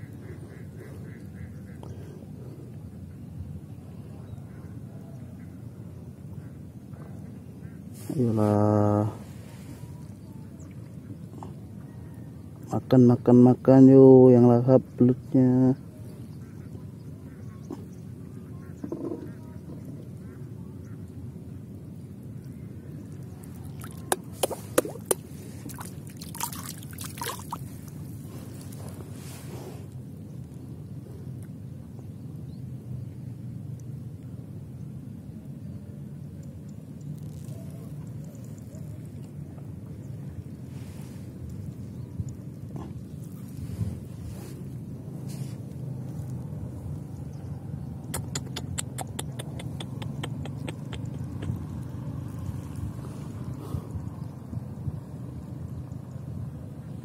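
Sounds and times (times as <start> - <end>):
steady low rumble: 15.7 - 57.0
water trickling: 23.0 - 28.3
hands slapping water: 23.6 - 28.0.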